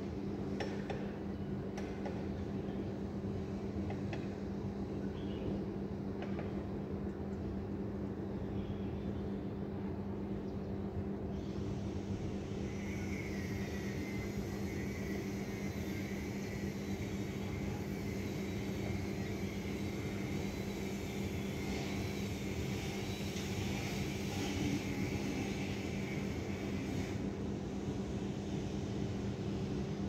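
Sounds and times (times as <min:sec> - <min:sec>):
faint high whine: 0:11.3 - 0:30.0.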